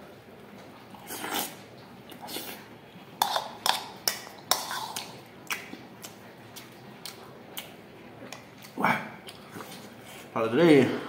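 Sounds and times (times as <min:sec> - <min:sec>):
wet chewing mouth clicks: 0:03.2 - 0:09.9.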